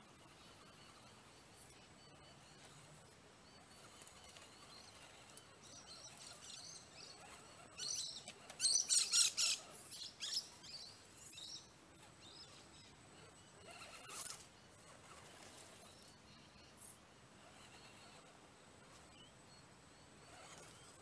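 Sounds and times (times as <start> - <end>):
birds chirping and chattering: 0.0 - 21.0.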